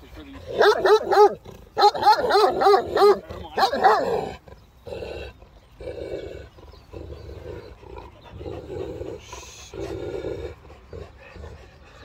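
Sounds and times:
dog growling low: 0:02.8 - 0:12.0
dog breathing: 0:07.2 - 0:12.0.

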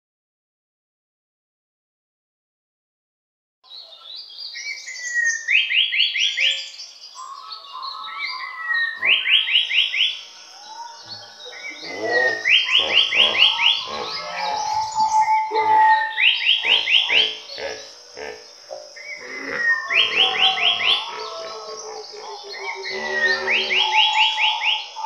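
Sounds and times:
frogs croaking: 0:04.9 - 0:25.0
bird calling: 0:05.0 - 0:25.0.

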